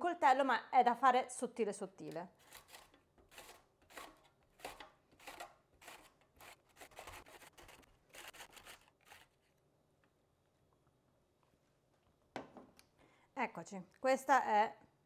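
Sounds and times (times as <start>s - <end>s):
vegetable scraping over slicer blade: 2.4s - 9.5s.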